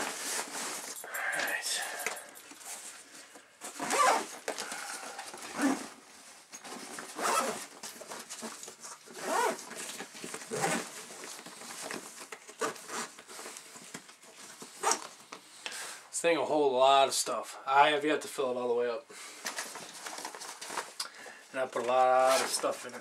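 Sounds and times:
zipper and strap rasping: 0:03.7 - 0:06.0, 0:06.6 - 0:07.7, 0:09.1 - 0:09.6, 0:10.4 - 0:10.9.

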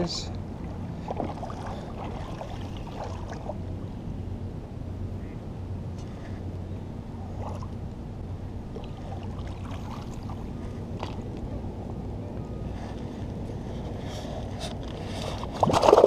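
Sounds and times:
engine humming: 0:00.0 - 0:16.0
small water splashes: 0:00.6 - 0:03.6, 0:08.7 - 0:11.2.

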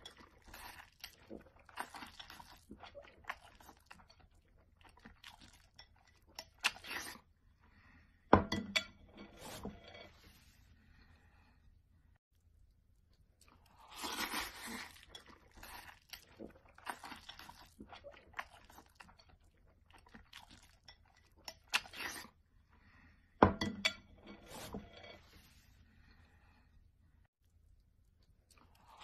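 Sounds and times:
person slurping noodles: 0:13.7 - 0:17.8.

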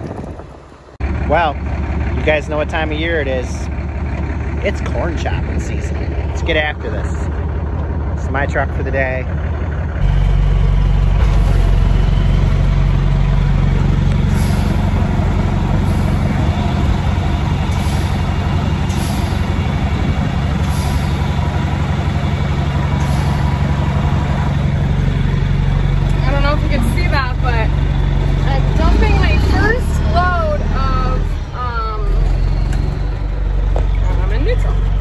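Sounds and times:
truck engine drone: 0:00.0 - 0:35.0.

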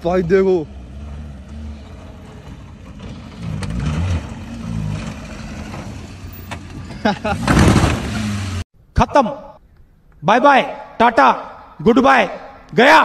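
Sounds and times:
car engine revving: 0:00.0 - 0:08.6.

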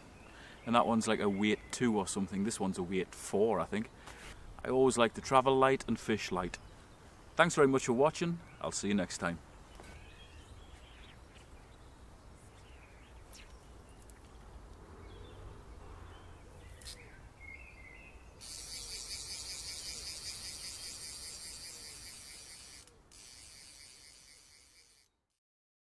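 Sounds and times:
faint bird chirps: 0:09.7 - 0:14.4
fly reel ratcheting: 0:18.4 - 0:25.2.

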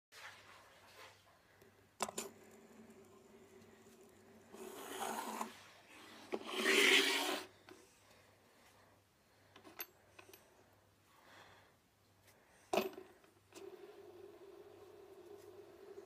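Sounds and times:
fidget spinner whirring: 0:02.6 - 0:05.5, 0:06.3 - 0:07.5
hand rubbing and brushing: 0:04.5 - 0:07.6.

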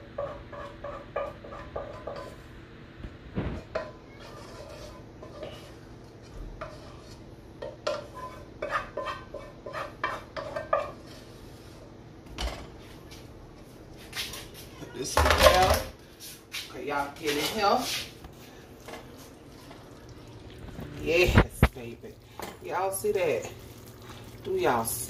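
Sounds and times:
utensil scraping metal pot: 0:00.1 - 0:02.4, 0:03.6 - 0:05.8, 0:06.6 - 0:11.3, 0:20.5 - 0:25.0.

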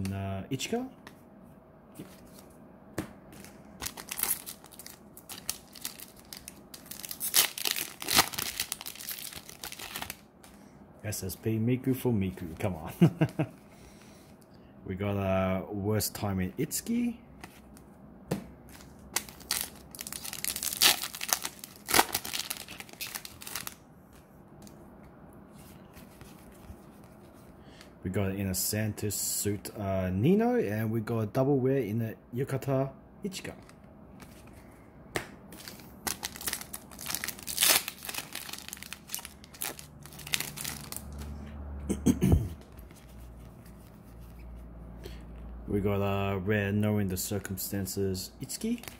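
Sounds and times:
plastic wrapper crinkling: 0:03.4 - 0:10.3, 0:19.1 - 0:23.8, 0:35.6 - 0:41.3, 0:48.6 - 0:48.9
foil pack crackling: 0:03.8 - 0:10.2, 0:19.2 - 0:23.8, 0:35.6 - 0:41.2.

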